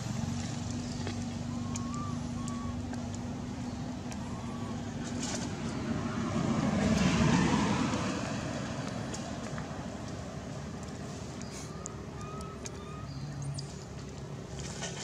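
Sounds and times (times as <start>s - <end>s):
car passing: 0.0s - 15.0s
faint bird chirp: 0.8s - 5.1s, 11.2s - 13.9s.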